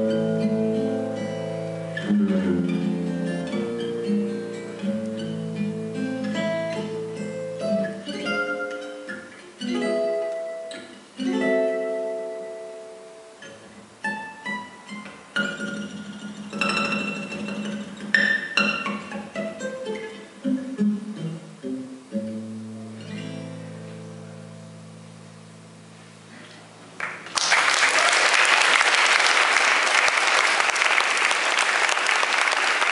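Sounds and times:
acoustic guitar picking and chords: 0.0s - 27.0s
audience applause: 27.0s - 32.9s.

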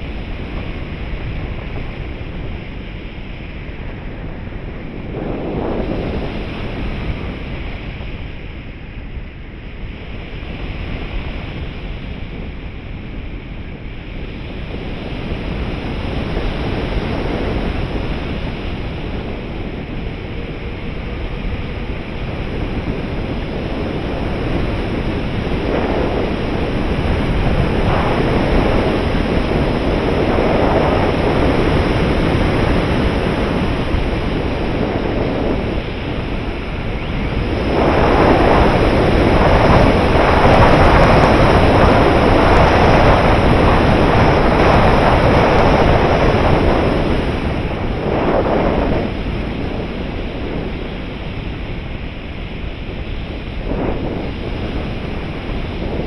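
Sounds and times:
wind noise on microphone: 0.0s - 56.0s.

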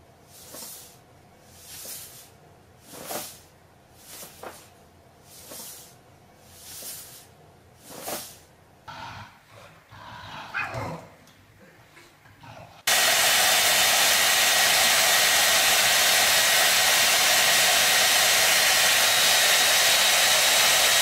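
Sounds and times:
breathy animal sounds: 8.9s - 12.9s.

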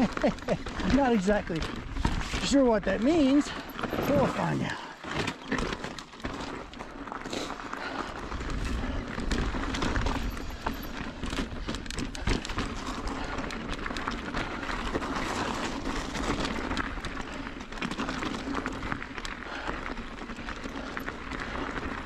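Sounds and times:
bike rattling: 0.0s - 22.0s
tyres crunching over dirt and rock: 0.0s - 22.0s
bike knocking on rocks: 8.4s - 22.0s.

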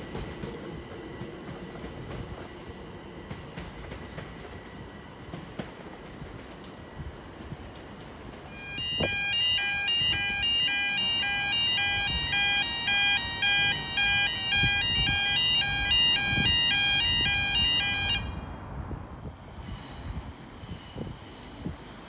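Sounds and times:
level crossing alarm warbling: 8.5s - 18.3s.

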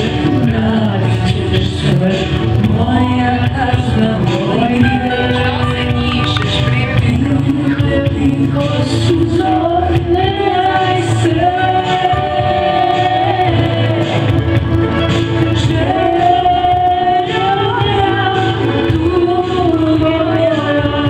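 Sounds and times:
instrumental accompaniment: 0.0s - 21.0s
woman singing into a microphone: 0.0s - 21.0s.

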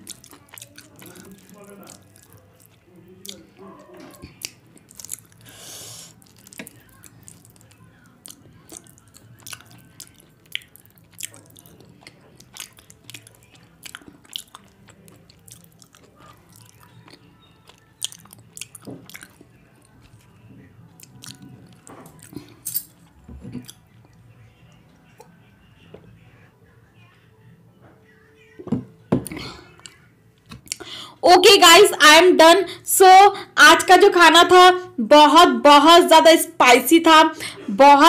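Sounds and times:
person chewing food: 0.0s - 24.2s, 29.2s - 30.9s.

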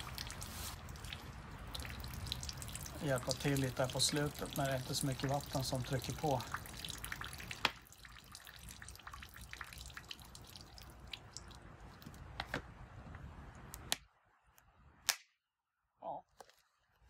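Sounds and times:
water trickling and dripping: 0.0s - 12.4s.

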